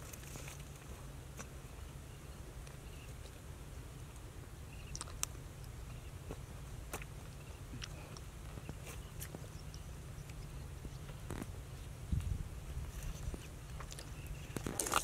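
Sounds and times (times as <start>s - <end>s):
wind on microphone: 10.4s - 15.0s.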